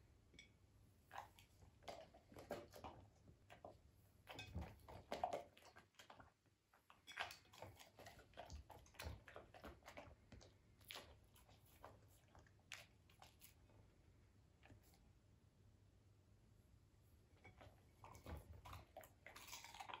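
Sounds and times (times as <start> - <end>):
puppy chewing wet clicks: 1.1 - 13.9, 17.4 - 20.0.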